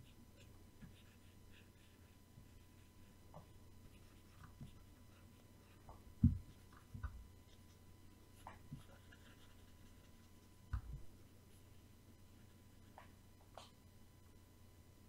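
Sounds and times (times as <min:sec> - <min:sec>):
faint electrical hum: 0:00.0 - 0:15.0
soft low thumps: 0:05.8 - 0:07.3.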